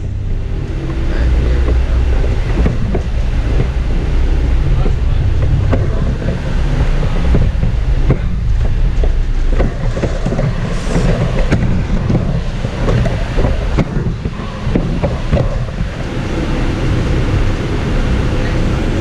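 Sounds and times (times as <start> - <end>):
bus engine and road rumble: 0.0 - 19.0
small rattles and knocks: 0.9 - 16.0.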